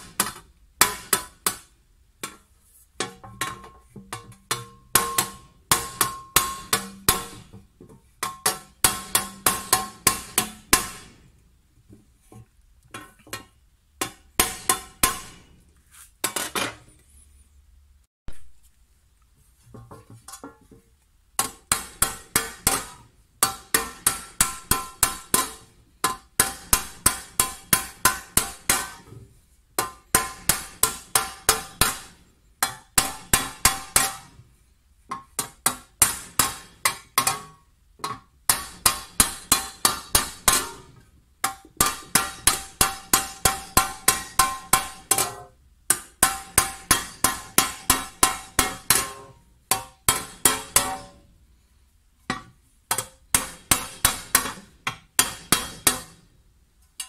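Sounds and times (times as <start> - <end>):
hammer striking copper tray: 3.0 - 7.6, 8.2 - 11.2, 13.3 - 15.5, 21.4 - 29.1, 29.8 - 34.3, 35.1 - 51.2, 52.3 - 56.2.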